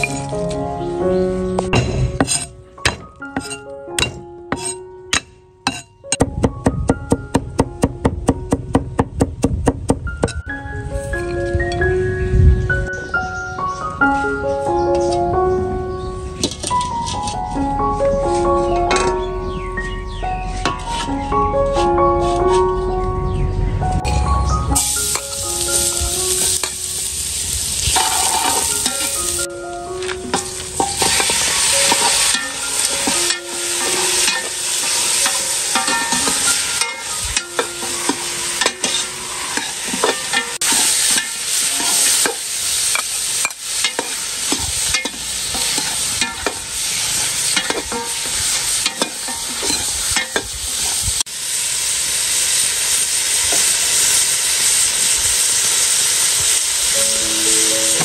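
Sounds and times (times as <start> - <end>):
metal utensil scraping pot: 1.8 - 2.6, 27.9 - 29.2, 30.3 - 51.0
garlic sizzling in hot oil: 24.6 - 58.0.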